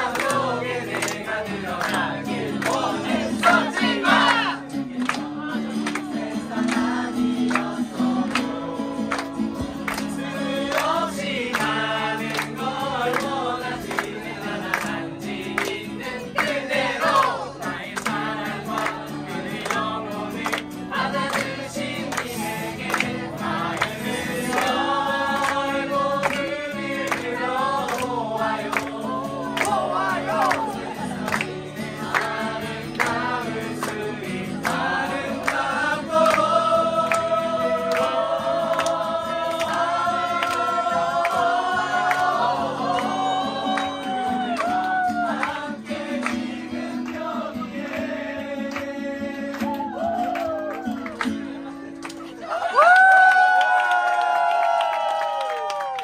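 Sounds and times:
crowd singing in chorus: 0.0 - 50.6
hands clapping: 0.0 - 56.0.

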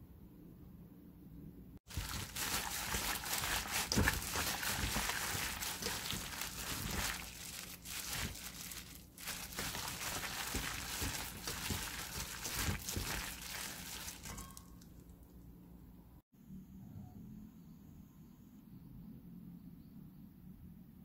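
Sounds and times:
plastic glove crinkling: 1.9 - 14.8.

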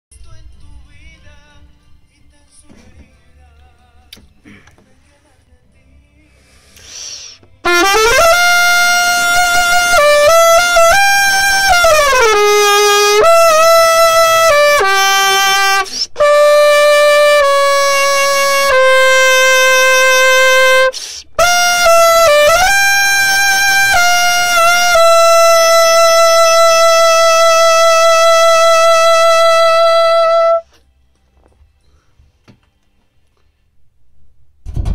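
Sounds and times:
solo trumpet melody: 6.9 - 30.8.

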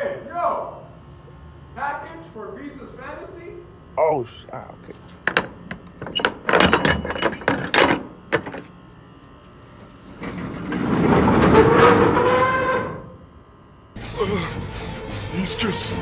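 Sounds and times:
door latch clanking and rattling: 5.3 - 8.6.

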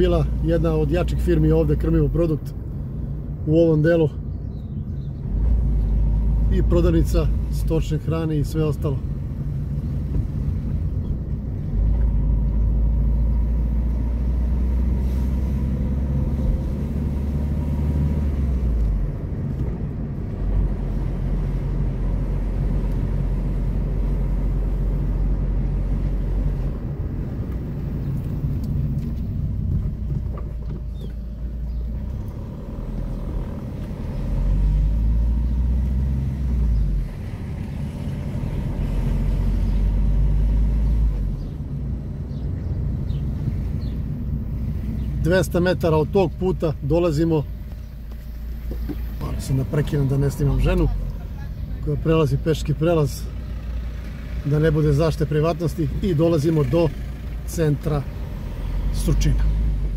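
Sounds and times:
car engine and road rumble: 0.0 - 59.9.

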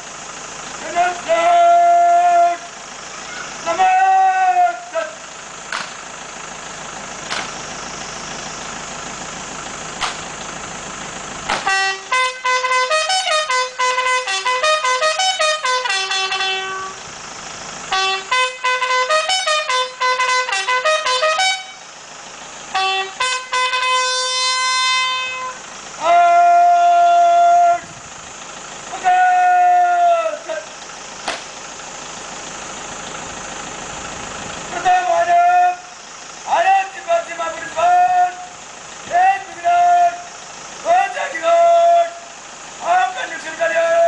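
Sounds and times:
bugle call: 0.9 - 5.3, 11.5 - 17.1, 17.9 - 22.0, 22.7 - 28.0, 28.9 - 30.7.

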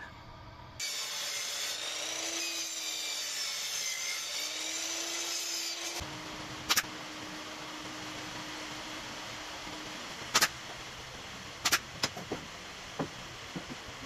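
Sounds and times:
miter saw cutting plywood: 0.8 - 11.0.

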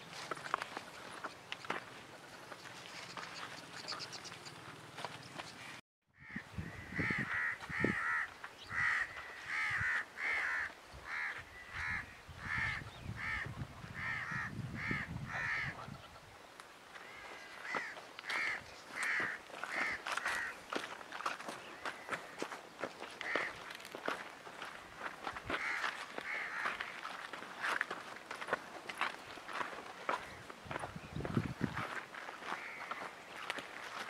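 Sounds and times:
bird harsh calls: 0.9 - 16.4.

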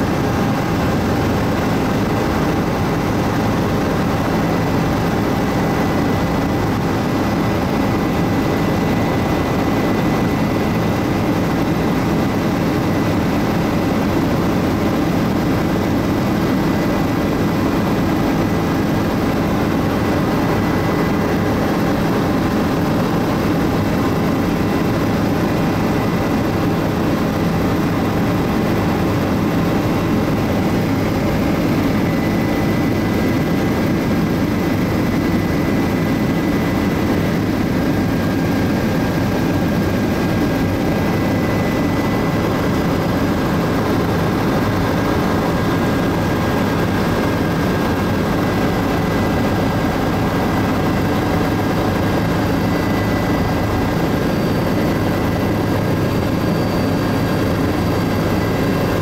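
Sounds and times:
helicopter cabin drone: 0.0 - 59.0.

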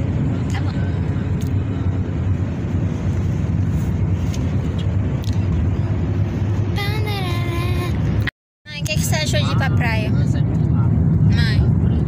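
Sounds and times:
car engine and road rumble: 0.0 - 12.0
girl's voice: 6.8 - 7.9.

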